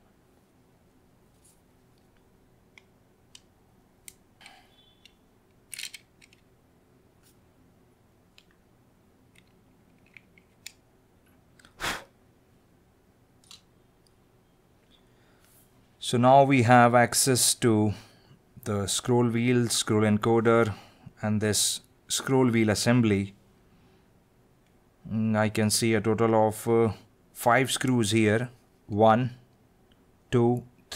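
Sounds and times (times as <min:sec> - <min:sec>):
screwdriver clicks and scrapes: 0:04.1 - 0:06.4.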